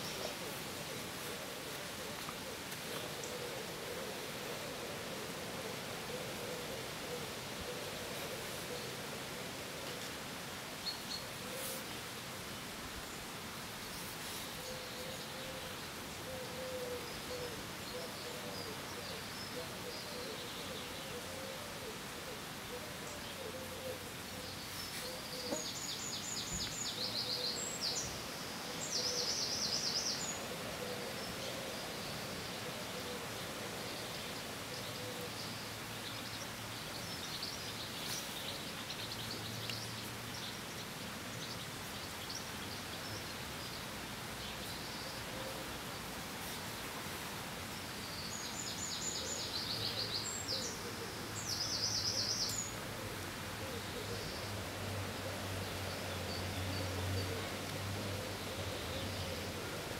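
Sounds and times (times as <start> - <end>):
steady hiss: 0.0 - 59.9.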